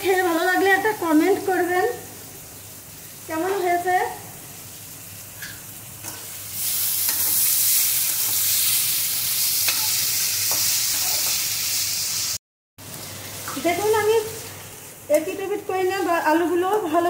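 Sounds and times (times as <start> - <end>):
potatoes sizzling in a pan: 0.0 - 17.0
metal spatula scraping a pan: 9.6 - 11.4.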